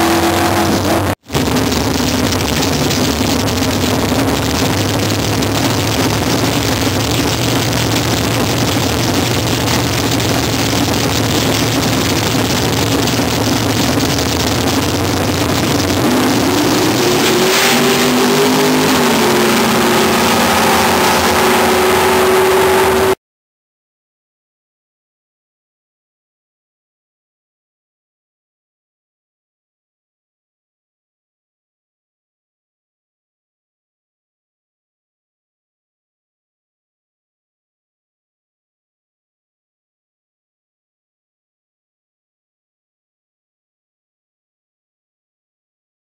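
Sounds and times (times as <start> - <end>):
drag race engines revving: 0.0 - 23.2.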